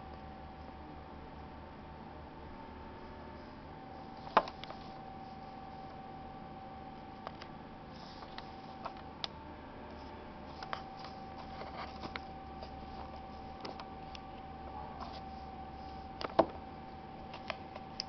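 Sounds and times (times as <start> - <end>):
steady background hum: 0.0 - 18.0
clicks and rustles of wires: 4.2 - 5.1, 7.2 - 16.6, 17.2 - 18.0.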